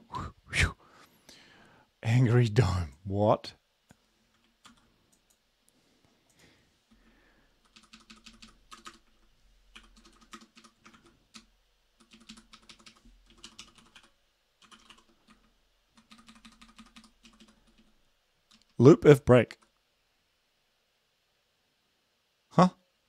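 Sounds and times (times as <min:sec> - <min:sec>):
typing on computer keyboard: 0:04.3 - 0:05.4, 0:07.6 - 0:17.9.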